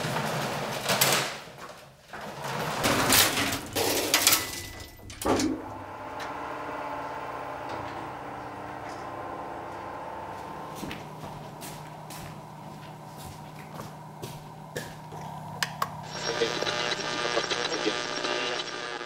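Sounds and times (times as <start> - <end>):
lift running hum: 2.2 - 19.0
lift gate rattling shut: 2.3 - 6.4.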